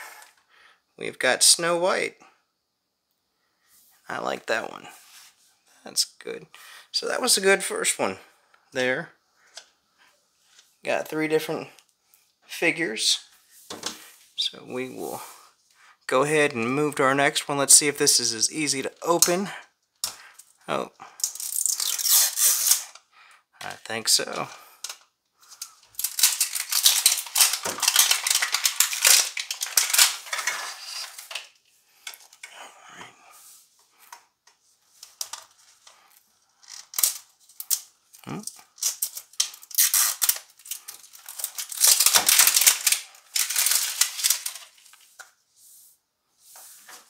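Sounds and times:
plastic wrap crackling: 21.2s - 22.9s, 25.4s - 32.5s, 35.0s - 45.3s.

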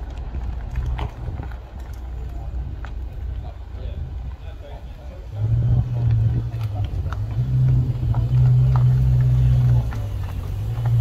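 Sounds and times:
car engine at low revs: 0.0s - 11.0s.

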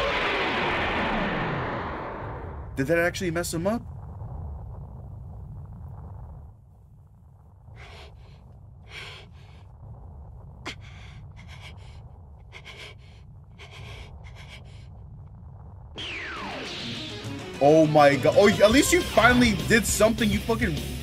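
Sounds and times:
steady low rumble: 0.0s - 21.0s
heavy breaths and gasps: 7.7s - 9.8s, 10.6s - 15.0s.

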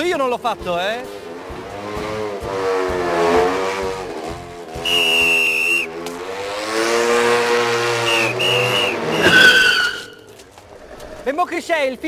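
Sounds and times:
motorcycle engine revving: 0.5s - 11.3s
shrill police whistle blast: 4.8s - 5.9s, 8.0s - 10.3s.

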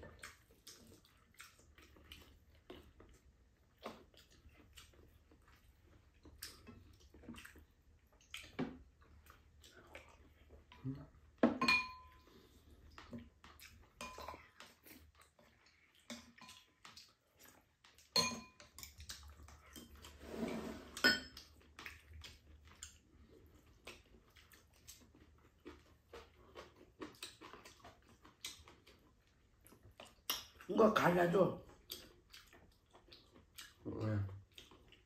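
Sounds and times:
cutlery clinking on ceramic bowls: 11.4s - 12.2s, 14.0s - 14.4s, 18.1s - 19.0s, 21.0s - 21.4s.

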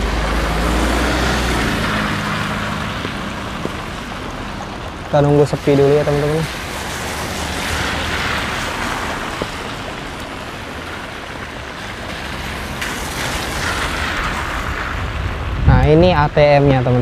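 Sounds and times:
cars passing on wet road: 0.0s - 17.0s.

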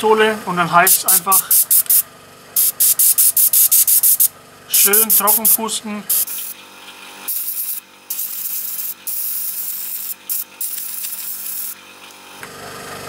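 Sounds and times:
airbrush hissing air: 0.9s - 2.0s, 2.6s - 6.6s, 7.3s - 11.8s.

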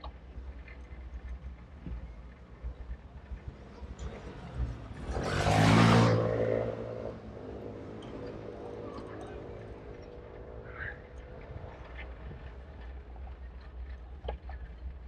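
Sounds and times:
faint engine hum: 0.0s - 15.0s
motor vehicle passing: 3.7s - 12.6s.

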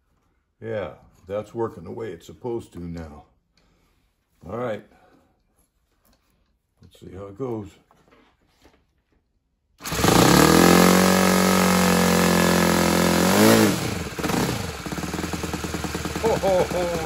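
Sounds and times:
model aircraft engine running: 9.8s - 17.0s.

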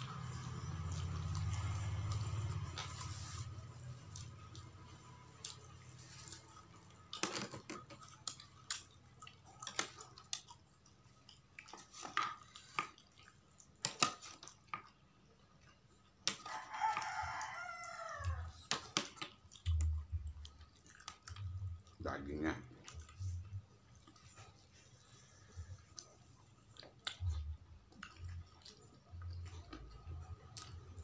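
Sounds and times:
eating clicks and mouth noises: 0.0s - 31.0s
rooster crowing: 16.4s - 18.5s.

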